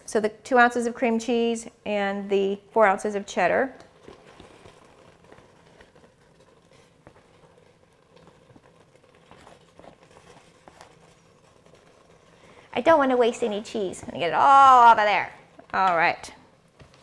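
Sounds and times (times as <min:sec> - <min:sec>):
spatula scraping plastic mat: 0:03.8 - 0:15.9.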